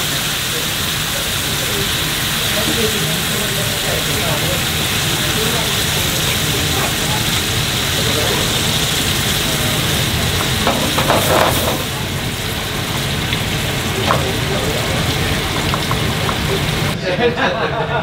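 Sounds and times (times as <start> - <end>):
sauce sizzling in a frying pan: 0.0 - 17.0
spatula scraping a pan: 10.4 - 12.0.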